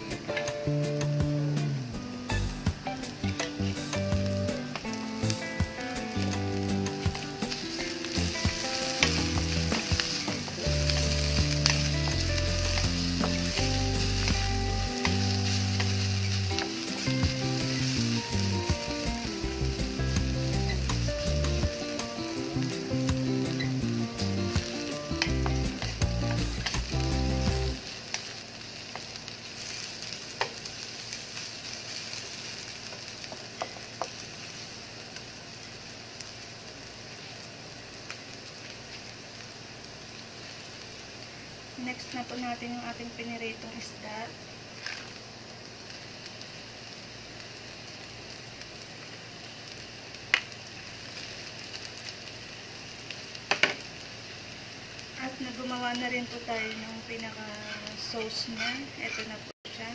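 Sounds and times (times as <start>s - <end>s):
background music: 0.0s - 27.8s
onions sizzling in oil: 0.0s - 59.9s
wooden spatula scraping a pan: 56.4s - 59.5s.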